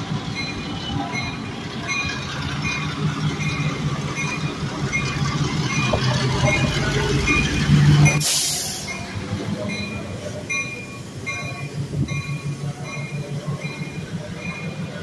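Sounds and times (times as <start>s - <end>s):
diesel locomotives passing: 0.0s - 15.0s.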